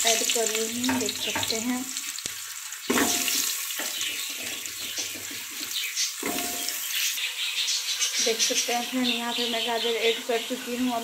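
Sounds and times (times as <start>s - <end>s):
carrots sizzling in hot oil: 0.0s - 11.0s.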